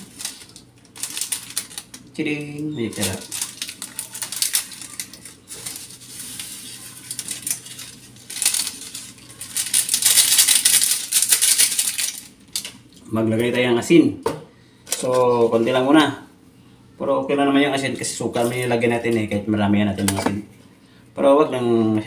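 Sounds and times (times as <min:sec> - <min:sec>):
plastic sachet crinkling: 0:00.0 - 0:12.9
seasoning sprinkled into pan: 0:03.8 - 0:12.2.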